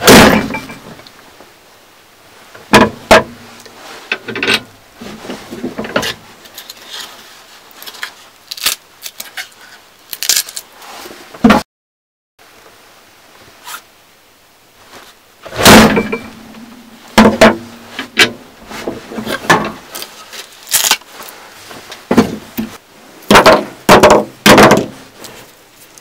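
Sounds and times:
workbench ringing hum: 15.8s - 17.1s.

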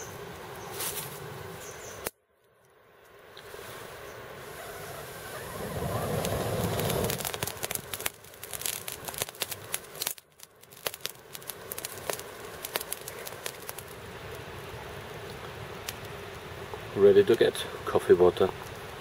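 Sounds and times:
fire crackling: 3.0s - 19.0s
fire rushing: 3.5s - 17.9s.

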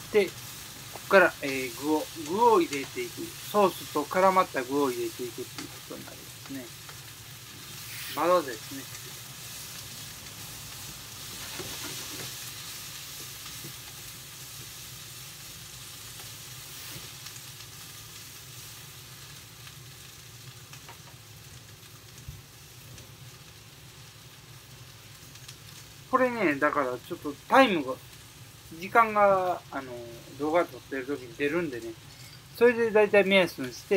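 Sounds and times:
cabbage sizzling in a frying pan: 0.0s - 33.9s
spatula stirring and tapping pan: 10.8s - 14.8s, 20.8s - 21.2s.

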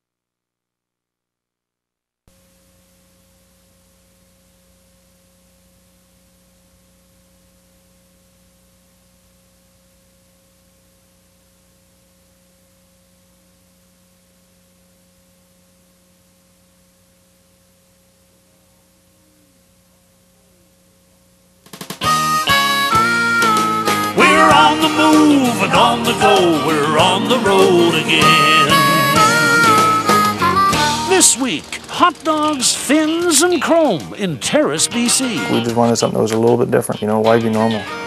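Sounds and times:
low electrical hum: 2.3s - 38.0s
tape hiss: 2.3s - 38.0s.

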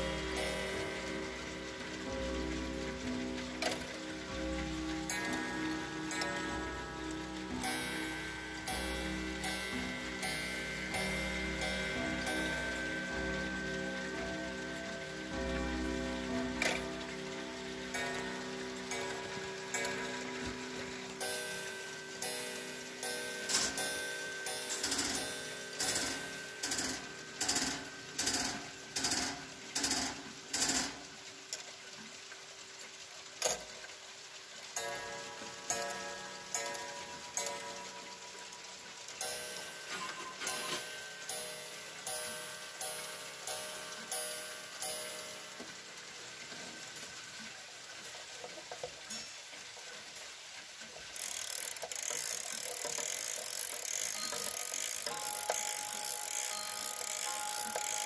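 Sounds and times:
clock gong striking: 0.0s - 29.7s
clock strike mechanism whirr: 0.0s - 48.6s, 51.0s - 58.0s.

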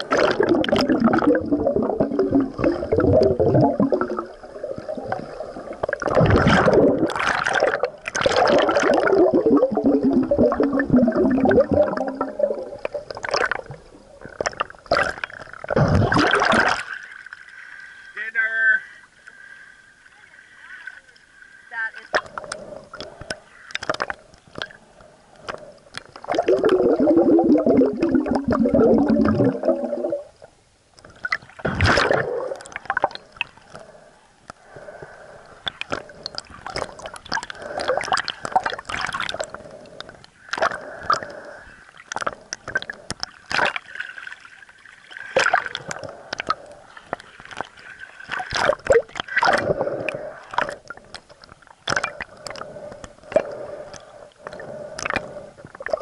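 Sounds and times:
loud bubbling: 0.0s - 5.2s, 5.8s - 13.8s, 14.4s - 16.9s, 26.2s - 30.4s, 31.6s - 33.2s
muffled underwater gurgling: 0.0s - 16.8s, 26.3s - 30.4s.

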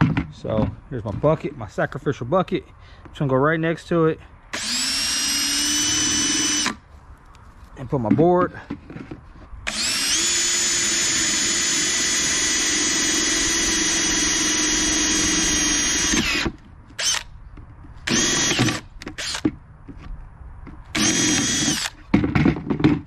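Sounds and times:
power drill boring plastic: 4.6s - 6.8s, 9.7s - 17.2s, 18.1s - 19.5s, 21.0s - 22.0s.

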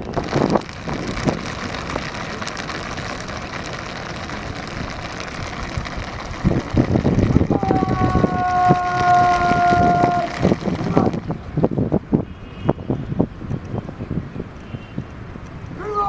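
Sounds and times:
long steady call: 0.0s - 12.8s
wind rushing on microphone: 0.0s - 16.0s.

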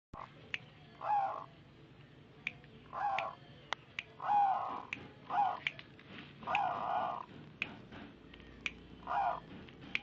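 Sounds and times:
dove cooing: 1.0s - 1.5s, 2.9s - 3.4s, 4.2s - 5.7s, 6.4s - 7.4s, 9.0s - 9.6s.

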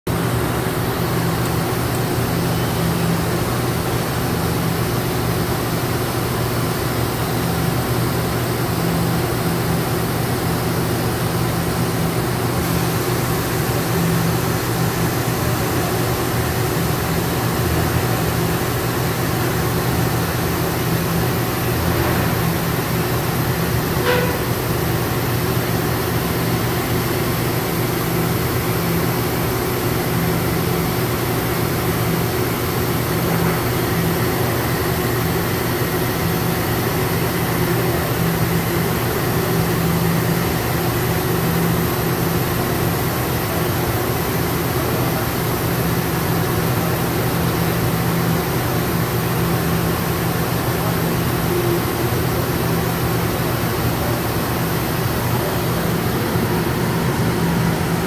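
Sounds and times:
factory machinery drone: 0.1s - 58.0s
short squeak: 24.0s - 24.6s.

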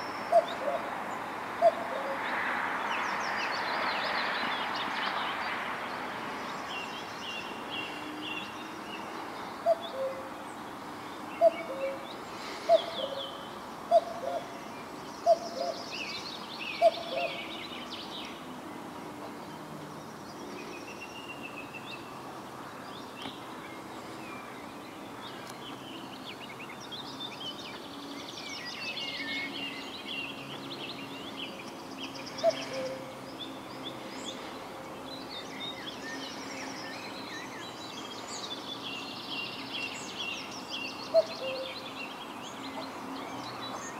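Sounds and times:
small songbirds singing: 0.0s - 43.9s
cuckoo calling: 0.3s - 0.9s, 1.6s - 2.2s, 9.6s - 10.3s, 11.4s - 14.6s, 15.2s - 15.9s, 16.7s - 17.6s, 32.2s - 33.2s, 41.1s - 41.8s.

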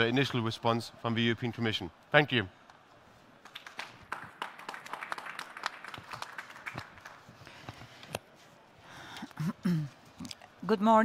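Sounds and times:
audience clapping: 2.6s - 7.6s.

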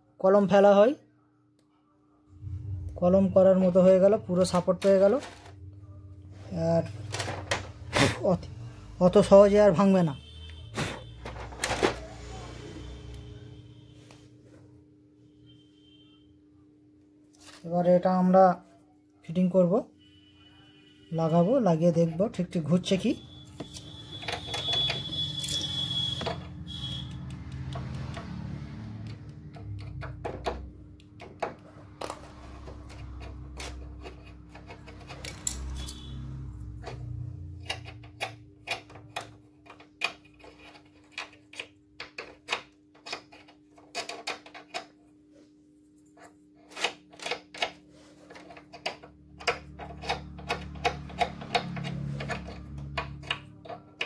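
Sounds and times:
plastic parts clicking and tapping: 29.0s - 35.7s, 36.6s - 45.0s, 46.2s - 54.0s.

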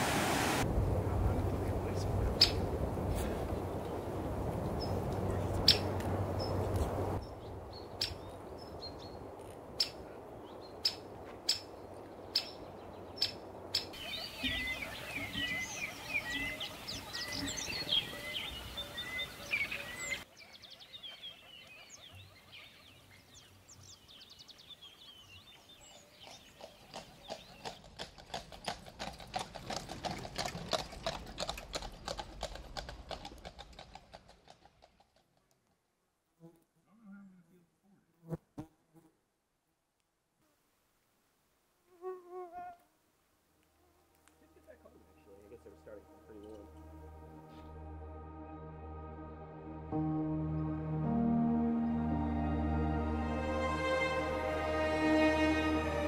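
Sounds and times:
songbirds chirping and trilling: 3.6s - 28.0s.

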